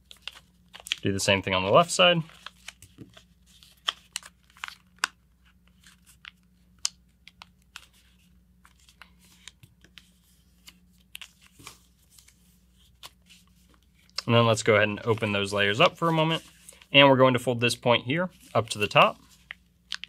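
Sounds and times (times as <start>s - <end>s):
paper being folded and creased: 0.0s - 1.0s, 2.2s - 14.2s.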